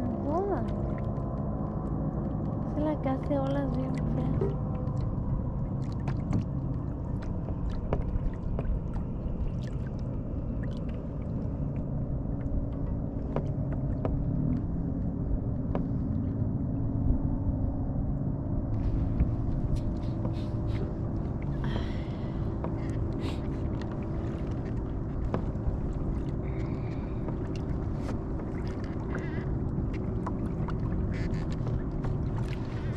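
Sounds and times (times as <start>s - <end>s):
faint steady hum: 0.0s - 32.9s
kayak moving across water: 4.4s - 16.6s, 18.8s - 32.9s.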